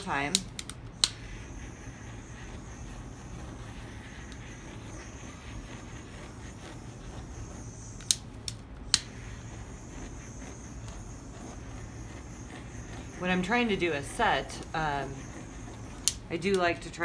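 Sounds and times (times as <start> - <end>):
handheld torch hissing: 0.0 - 17.0
sharp clicks: 0.3 - 1.2.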